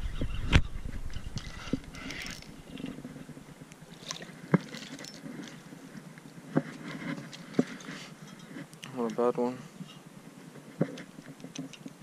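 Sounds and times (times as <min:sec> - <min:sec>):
water splashing: 0:03.8 - 0:05.6.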